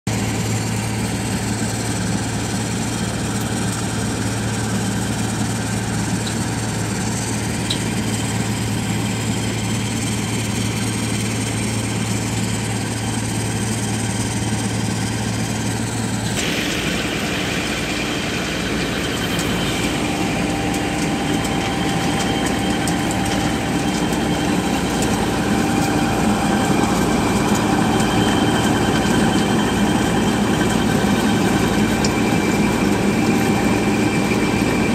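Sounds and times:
milling machine engine and drum: 0.1s - 34.9s
steady whining tones: 16.0s - 34.9s.

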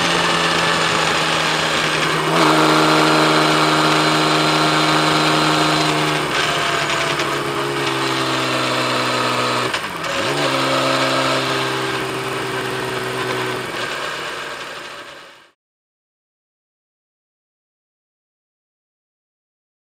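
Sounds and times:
motorcycle engine running: 0.0s - 15.6s.

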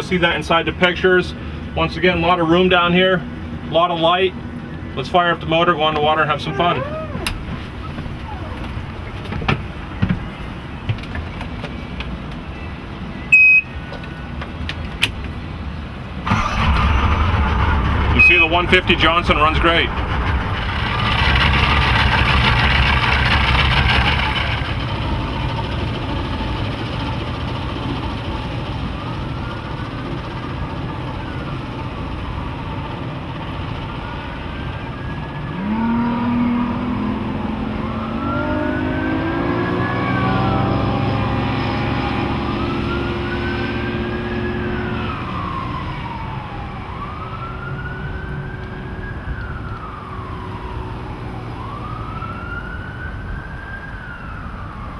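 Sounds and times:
high rising and falling wail: 6.2s - 7.4s, 8.2s - 8.7s, 35.4s - 46.4s
outboard motor running: 16.3s - 33.9s.

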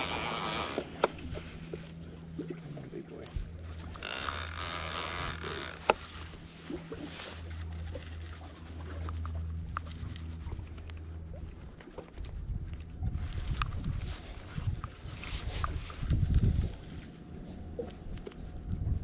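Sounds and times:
fishing reel clicking: 0.0s - 1.1s, 3.8s - 6.0s
fishing reel gears whirring: 0.0s - 1.2s, 3.5s - 11.2s
low boat hum: 0.0s - 19.0s.

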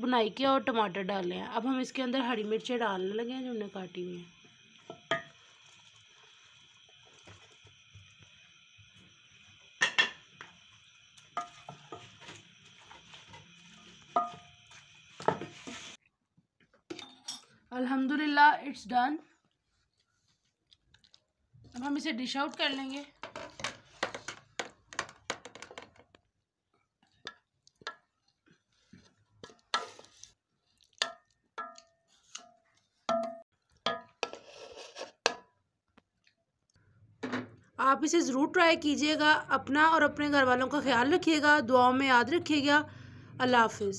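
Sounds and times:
spatula scraping in pot: 4.4s - 16.0s, 27.8s - 33.1s, 33.8s - 35.4s
spatula knocking against metal pot: 4.9s - 5.4s, 31.0s - 31.9s.

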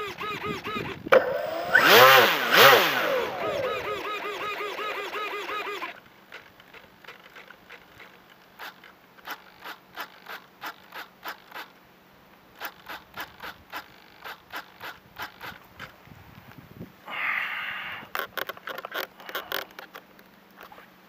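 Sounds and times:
sharp scratchy clicks: 0.0s - 16.0s, 18.1s - 20.9s.

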